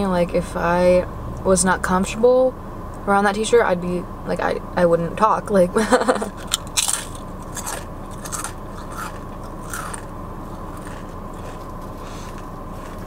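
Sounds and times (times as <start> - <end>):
chip crunching while chewing: 6.3 - 13.0.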